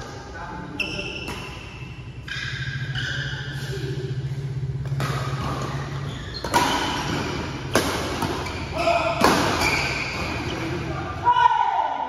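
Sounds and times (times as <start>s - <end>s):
racket striking shuttlecock: 4.8s - 10.3s.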